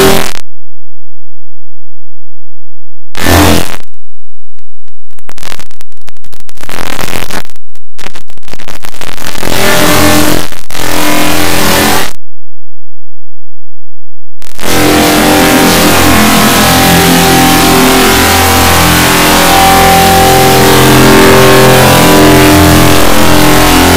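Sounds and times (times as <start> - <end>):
harsh distorted noise: 0.0 - 0.5, 3.1 - 4.0, 4.6 - 12.2, 14.4 - 23.9.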